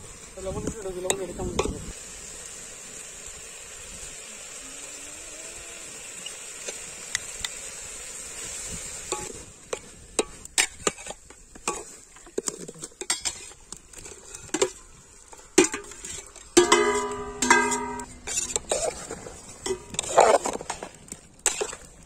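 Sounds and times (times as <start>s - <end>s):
spatula scraping metal pot: 9.2s - 22.0s
ringing metallic tone: 16.6s - 18.7s.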